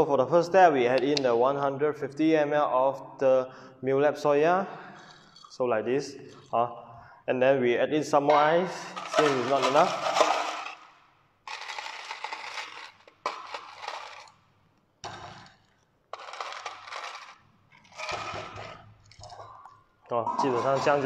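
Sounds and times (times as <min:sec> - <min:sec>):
ice cubes clinking and rattling: 0:05.0 - 0:05.6, 0:08.8 - 0:14.4, 0:15.0 - 0:19.8.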